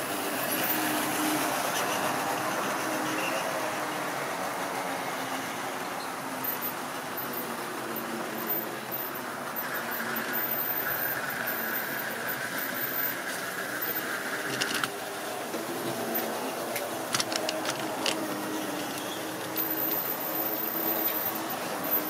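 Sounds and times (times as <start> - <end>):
model train wheels rattling on rails: 0.0 - 22.0
high squeal: 18.8 - 22.0.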